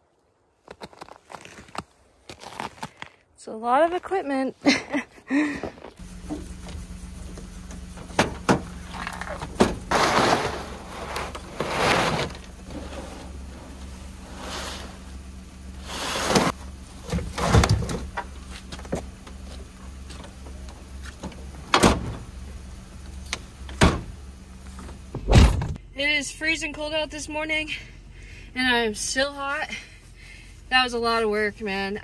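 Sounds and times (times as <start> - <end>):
gear rustling and scraping: 0.6 - 21.6
loud thump: 25.2 - 25.8.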